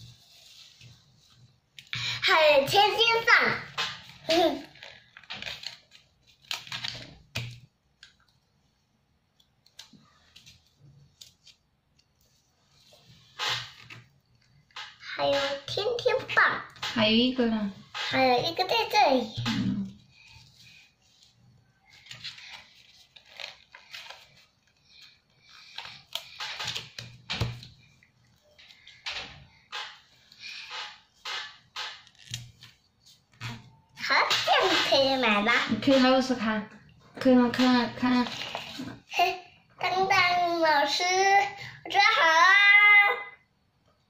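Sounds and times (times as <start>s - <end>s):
paper rustling and crinkling: 3.8s - 8.2s, 19.8s - 29.2s, 37.8s - 39.1s.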